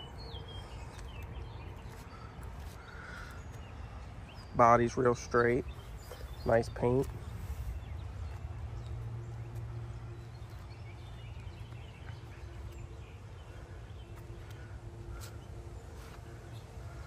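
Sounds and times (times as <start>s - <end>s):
steady low hum: 5.1s - 17.0s.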